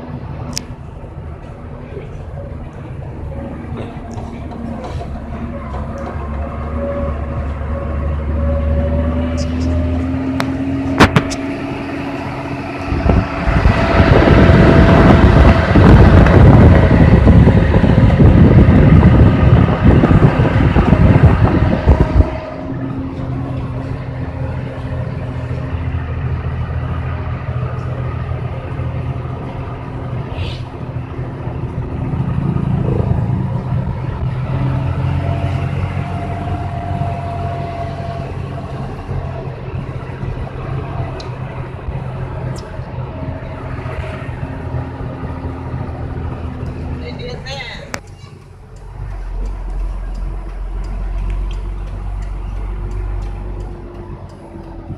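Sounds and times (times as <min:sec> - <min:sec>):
truck diesel engine running: 0:00.0 - 0:54.9
wind on microphone: 0:12.8 - 0:23.0.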